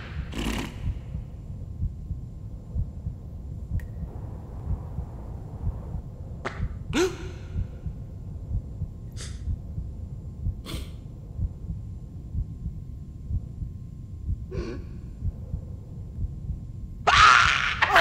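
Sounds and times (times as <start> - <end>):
low uneven rumbling: 0.0 - 17.0.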